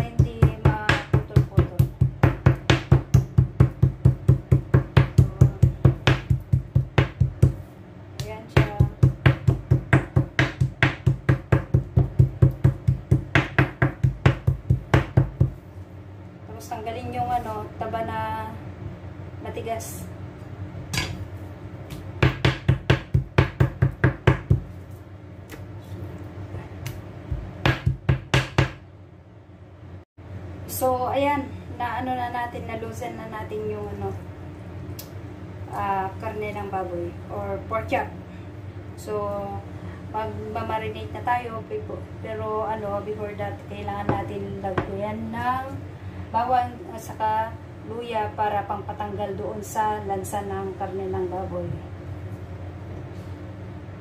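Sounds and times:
knife pounding meat on board: 0.0 - 7.6, 8.2 - 15.6, 21.9 - 24.7, 27.3 - 28.8.

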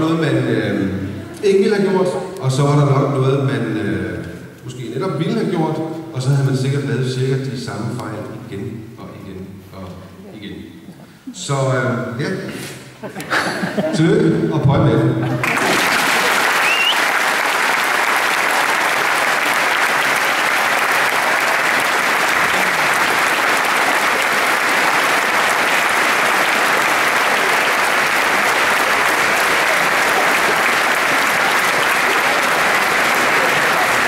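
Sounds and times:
large audience applauding: 15.4 - 34.0.

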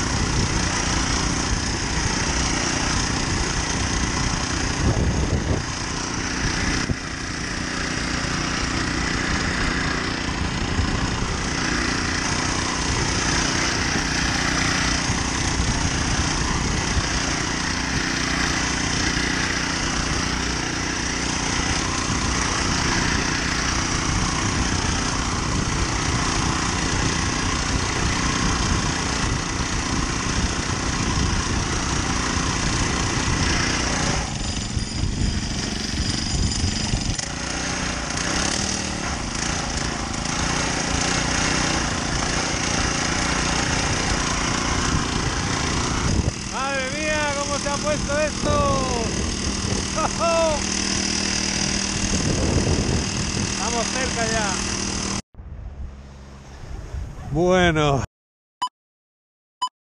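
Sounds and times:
small engine running steadily: 0.0 - 57.3.

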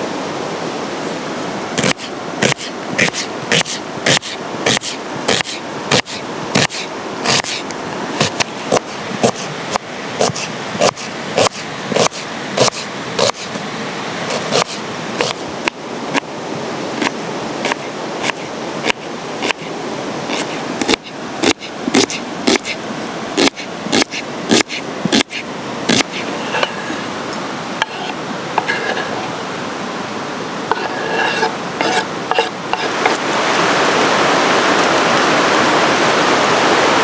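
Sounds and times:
steady rushing hiss: 0.0 - 37.0
knife chopping on wooden board: 1.8 - 7.6, 8.2 - 9.5, 10.2 - 13.5, 14.3 - 15.4, 20.3 - 22.8, 23.4 - 26.8.

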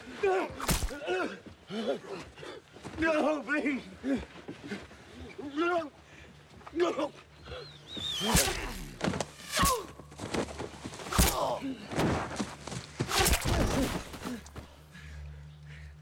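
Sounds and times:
bodies thudding on ground: 0.6 - 1.0, 8.2 - 14.6.

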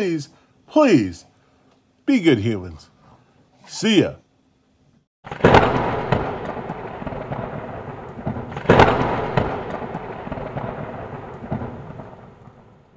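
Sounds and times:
crackling rumble: 5.2 - 12.9.

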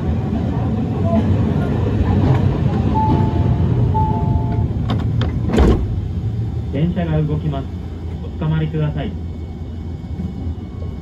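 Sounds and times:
low tram rumble: 0.0 - 11.0
electronic chime: 3.0 - 4.7.

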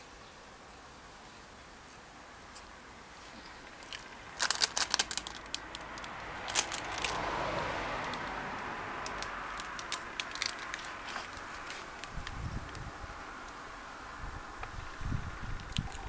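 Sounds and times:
plastic wrapper crinkling: 3.8 - 7.2, 9.0 - 12.8.

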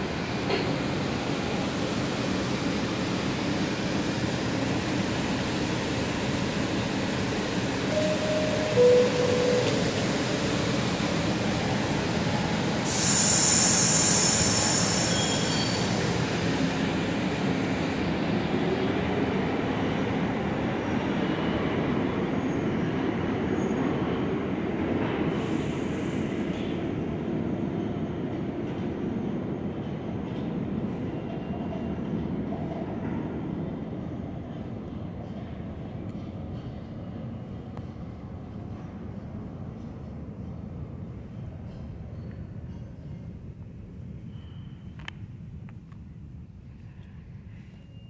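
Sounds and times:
subway train rumble: 0.0 - 48.0
two-note door chime: 7.9 - 9.8
burst of air hiss: 12.8 - 15.9.

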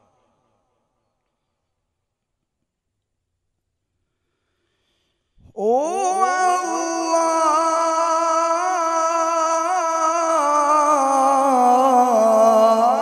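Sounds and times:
man reciting melodically: 5.5 - 13.0.

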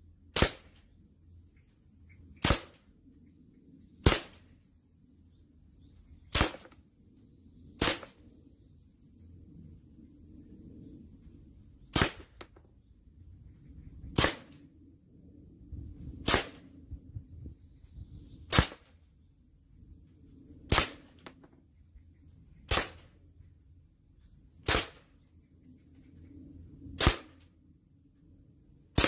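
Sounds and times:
airgun shots cracking: 0.3 - 0.8, 2.4 - 2.9, 4.0 - 4.4, 6.3 - 6.8, 7.8 - 8.2, 11.9 - 12.6, 14.1 - 14.6, 16.2 - 16.7, 18.5 - 18.9, 20.7 - 21.4, 22.7 - 23.2, 24.6 - 25.1, 27.0 - 27.4.

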